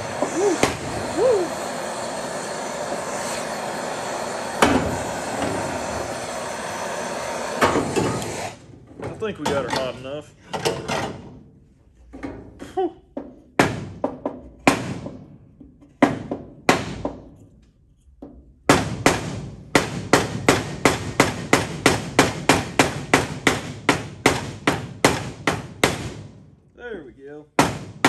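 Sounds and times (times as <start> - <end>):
hammer striking sheet steel: 4.5 - 5.7, 13.6 - 15.3, 16.0 - 17.3, 18.7 - 26.4.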